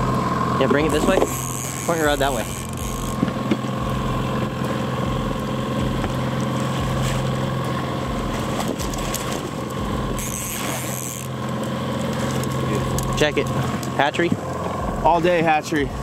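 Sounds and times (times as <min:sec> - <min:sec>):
boat motor running: 0:00.0 - 0:16.0
fish splashing in water: 0:05.9 - 0:13.8.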